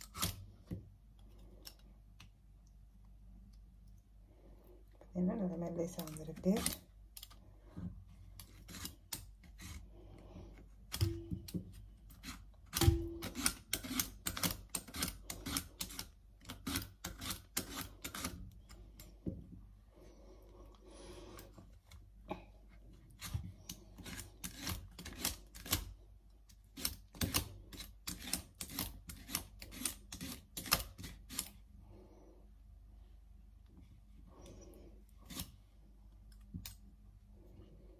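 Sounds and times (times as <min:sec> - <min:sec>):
root scraping on vegetable slicer: 0:23.1 - 0:25.8.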